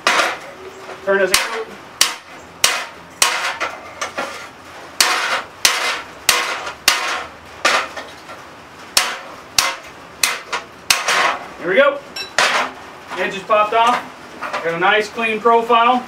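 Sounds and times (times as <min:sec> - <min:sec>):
hammer striking metal on anvil: 0:01.3 - 0:03.7, 0:05.0 - 0:07.9, 0:09.0 - 0:11.4.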